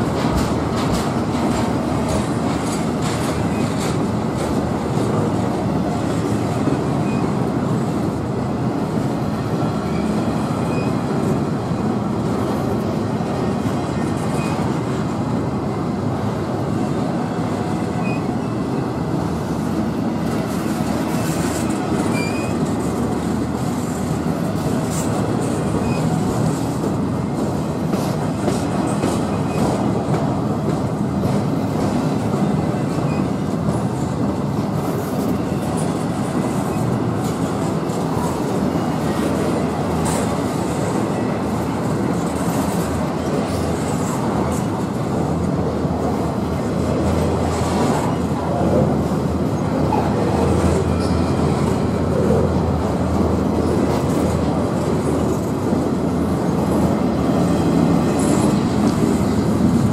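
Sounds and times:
clicking over rail joints: 0.0s - 5.6s
train wheels rumbling on rail: 0.0s - 59.9s.

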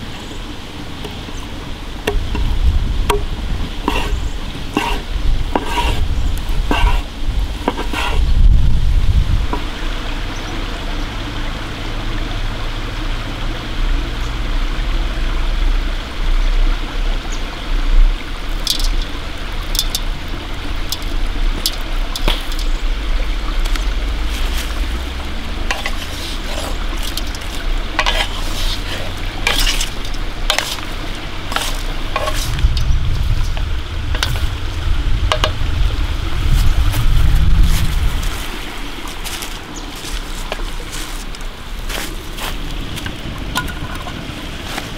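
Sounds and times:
forest stream running: 0.0s - 44.9s
footsteps in leaf litter: 23.6s - 33.4s, 36.5s - 43.1s.

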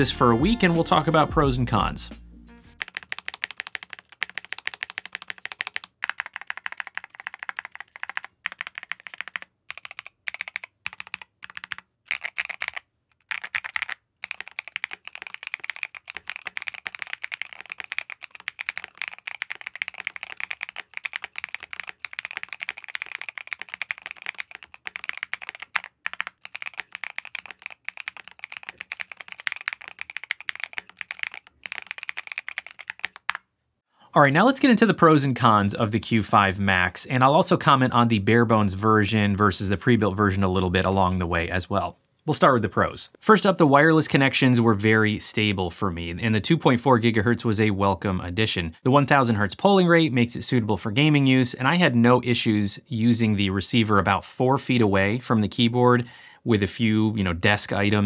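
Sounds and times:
mechanical keyboard typing: 2.8s - 33.4s.

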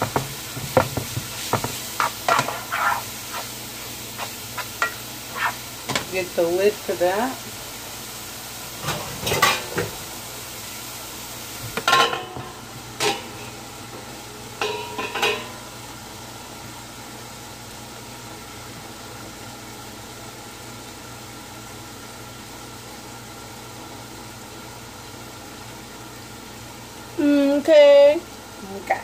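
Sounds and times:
steak sizzling under a lid: 0.0s - 13.9s
pan lid clinking against frying pan: 14.6s - 15.6s.

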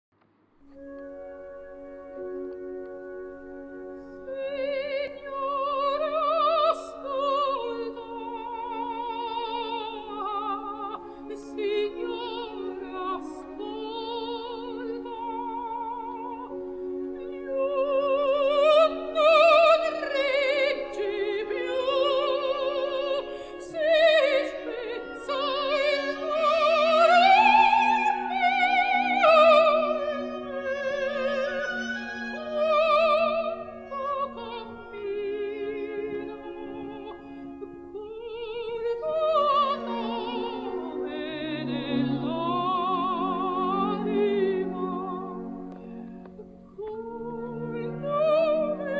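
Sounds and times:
sustained musical accompaniment: 0.6s - 48.9s
operatic voice singing: 17.4s - 45.5s.

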